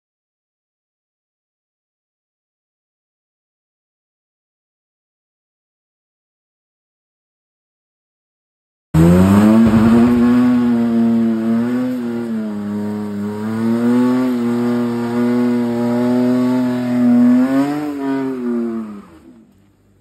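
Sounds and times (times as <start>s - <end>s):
car engine at high revs: 9.0s - 19.5s.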